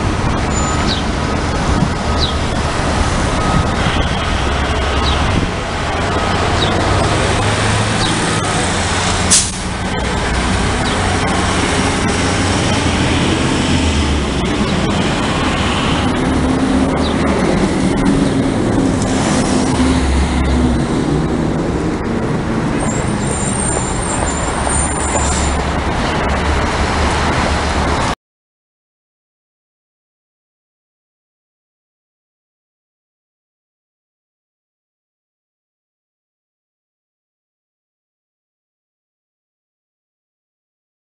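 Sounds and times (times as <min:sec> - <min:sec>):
traffic rumble: 0:00.0 - 0:28.2
high squeal: 0:22.8 - 0:25.7.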